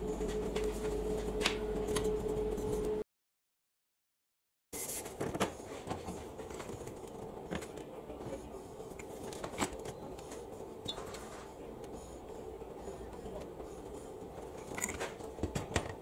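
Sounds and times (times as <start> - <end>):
metal parts clicking and clinking: 14.7 - 15.2.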